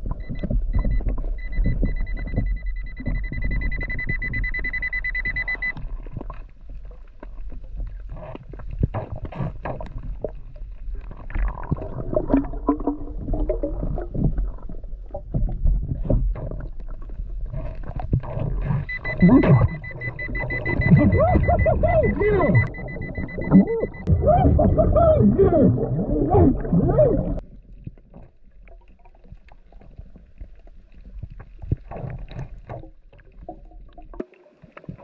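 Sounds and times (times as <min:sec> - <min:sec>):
underwater gurgling and bubbling: 0:00.0 - 0:04.4, 0:05.8 - 0:35.0
metal detector high beep: 0:00.2 - 0:05.8, 0:18.9 - 0:24.8.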